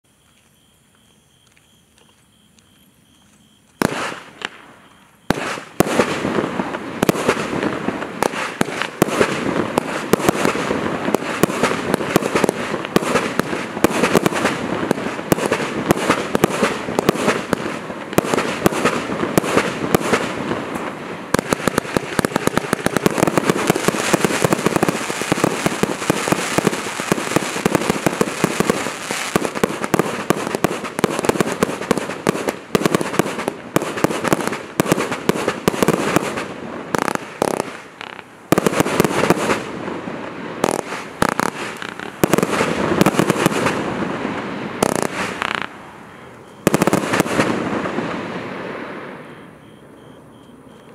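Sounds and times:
firework cake firing with crackle: 0:03.8 - 0:45.8, 0:46.7 - 0:49.4.

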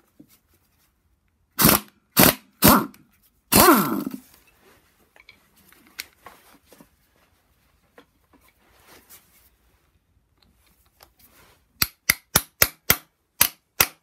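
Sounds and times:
impact wrench hammering: 0:11.8 - 0:14.0
tools clicking and knocking: 0:11.8 - 0:14.0.

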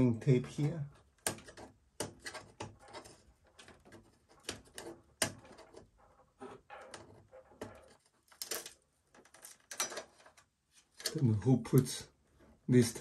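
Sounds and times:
hands rustling cables and tape: 0:00.3 - 0:12.6.

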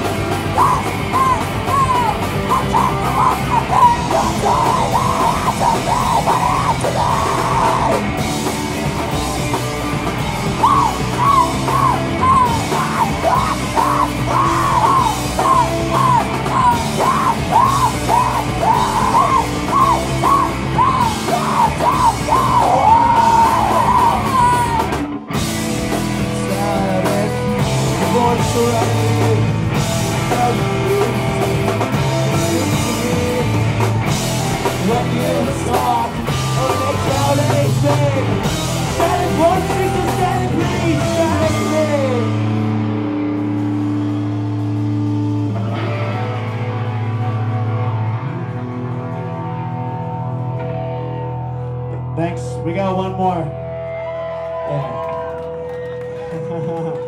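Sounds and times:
yelled vocals: 0:00.0 - 0:43.8
high melodic guitar line: 0:00.0 - 0:54.8
rock band playing: 0:00.0 - 0:57.0.

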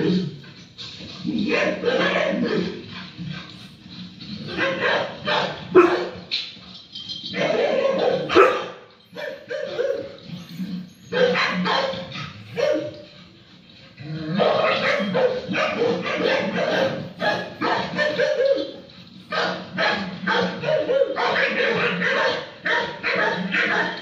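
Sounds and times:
dog barking: 0:01.4 - 0:02.8, 0:04.4 - 0:06.3, 0:07.4 - 0:10.2, 0:11.1 - 0:13.1, 0:14.4 - 0:24.0.

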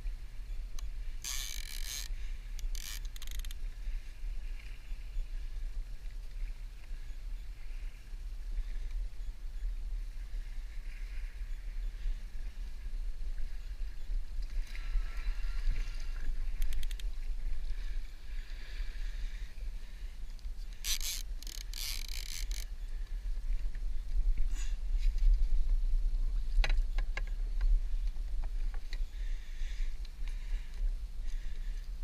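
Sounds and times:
water lapping against hull: 0:00.1 - 0:25.5.

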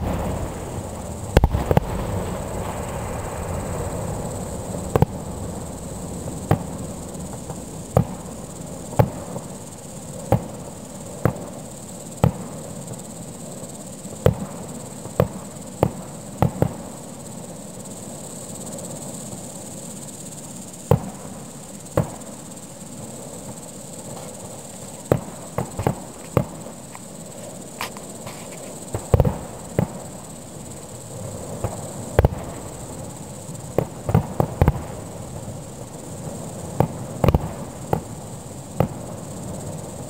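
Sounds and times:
distant fireworks bangs: 0:00.0 - 0:12.7, 0:14.2 - 0:16.9, 0:20.9 - 0:21.4, 0:22.0 - 0:22.3, 0:25.1 - 0:26.8, 0:27.8 - 0:30.1, 0:31.3 - 0:40.0
insects chirring: 0:00.0 - 0:40.0.

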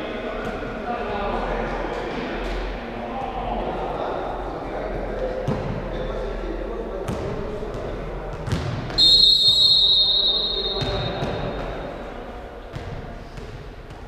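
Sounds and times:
players' voices: 0:00.0 - 0:14.0
ball hits echoing in sports hall: 0:05.3 - 0:06.1, 0:07.0 - 0:14.0
referee's whistle blast: 0:09.0 - 0:11.9.

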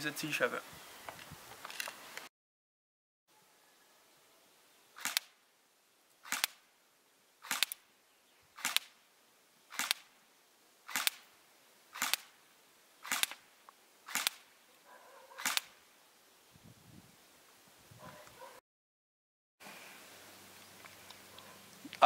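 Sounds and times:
airsoft rifle shots: 0:05.0 - 0:05.4, 0:06.2 - 0:06.6, 0:07.4 - 0:07.9, 0:08.6 - 0:09.0, 0:09.7 - 0:10.1, 0:10.9 - 0:11.3, 0:11.9 - 0:12.4, 0:13.0 - 0:13.4, 0:14.1 - 0:14.5, 0:15.4 - 0:15.8.

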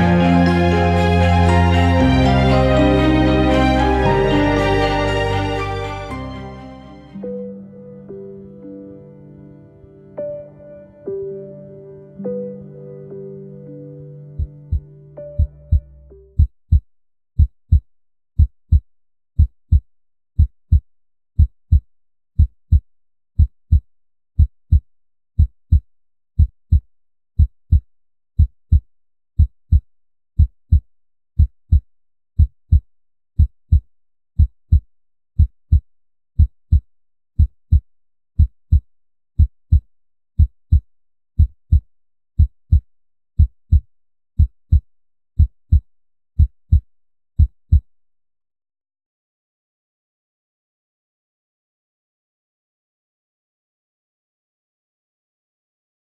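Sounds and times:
heartbeat thumps: 0:14.4 - 0:16.8, 0:28.4 - 0:28.8, 0:35.4 - 0:35.8, 0:42.4 - 0:42.8, 0:43.4 - 0:43.8, 0:46.4 - 0:46.8, 0:47.4 - 0:47.8.

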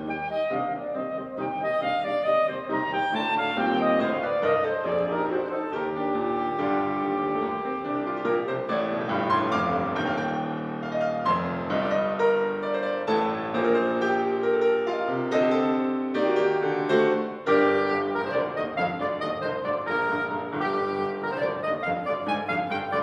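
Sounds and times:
soprano saxophone: 0:00.0 - 0:08.8, 0:16.9 - 0:23.0
grand piano: 0:00.0 - 0:23.0.

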